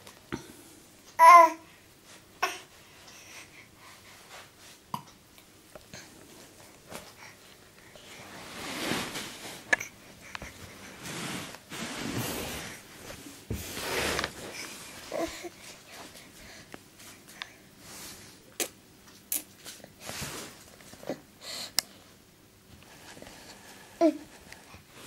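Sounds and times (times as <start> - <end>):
toddler breathing: 5.9 - 9.0, 9.6 - 11.6, 14.0 - 18.3.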